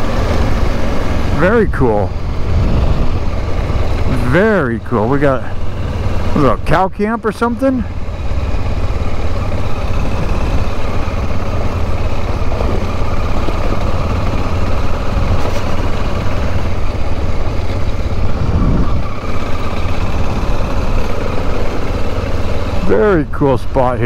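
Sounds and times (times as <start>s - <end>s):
motorcycle engine running: 0.0s - 24.0s
wind and road noise: 0.0s - 24.0s.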